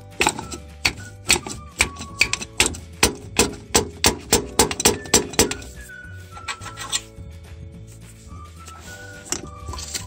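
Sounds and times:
background music: 0.0 - 10.0
sharp metallic knocks: 0.2 - 5.7.

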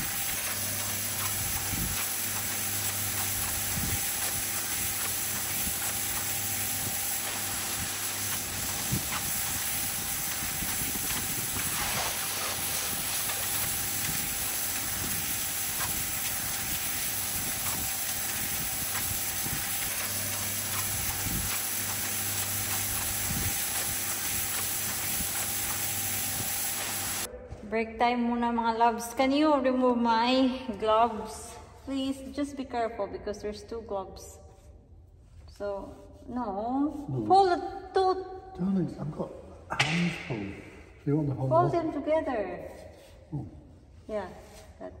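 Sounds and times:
motor hum: 0.0 - 27.3
pressure washer jet hissing on stone: 0.0 - 27.3.

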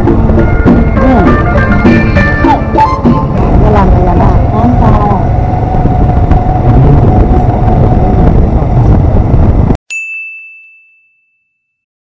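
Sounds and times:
motorcycle engine running: 0.0 - 9.8
wind rumble on microphone: 0.0 - 9.8
bell-like ding: 9.9 - 11.8.

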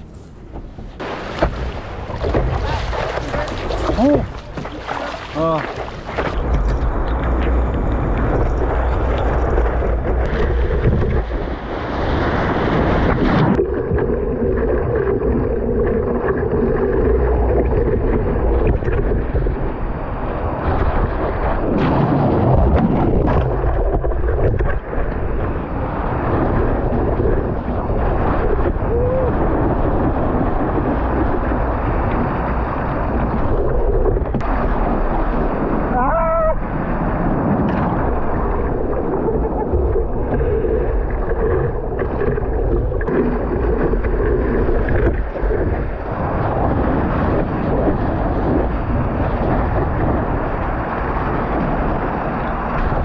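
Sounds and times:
wind buffeting microphone: 0.0 - 53.0
whitewater rushing and splashing: 1.0 - 7.2.

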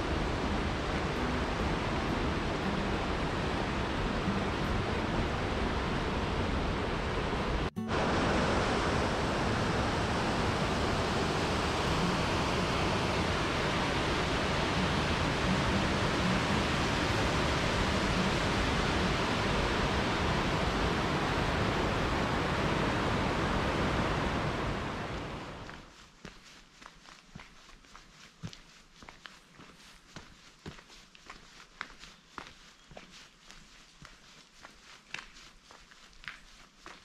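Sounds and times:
water rushing over weir: 0.0 - 25.8.

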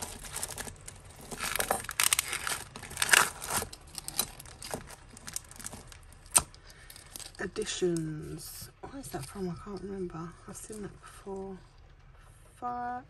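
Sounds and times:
plastic packaging crinkling: 0.0 - 7.5.

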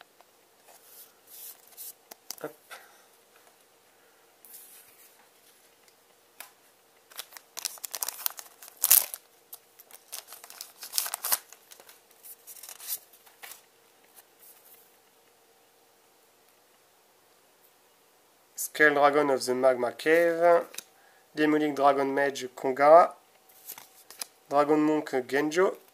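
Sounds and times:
foil wrapper crinkling and ripping: 7.1 - 13.0
light rustling of wrapper: 7.1 - 14.8, 23.5 - 24.3.

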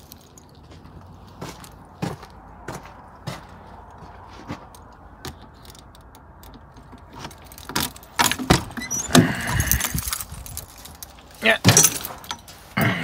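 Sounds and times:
keys jingling: 5.3 - 13.0.

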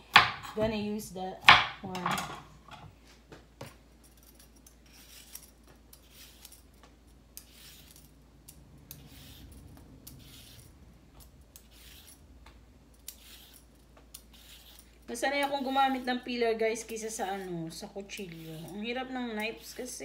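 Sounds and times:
peeler scraping carrot: 4.9 - 6.7, 7.4 - 8.1, 8.8 - 12.3, 13.0 - 20.0.

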